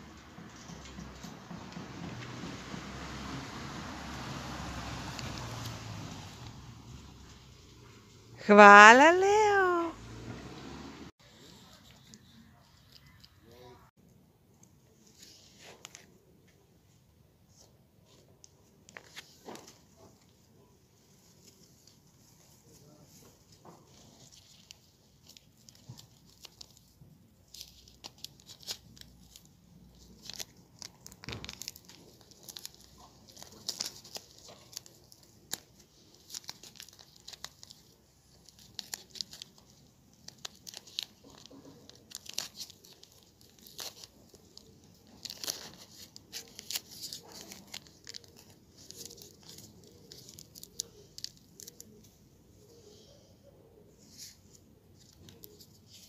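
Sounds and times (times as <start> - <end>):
wrapping paper rustling and crinkling: 15.0 - 16.1, 17.6 - 52.8, 54.0 - 56.0.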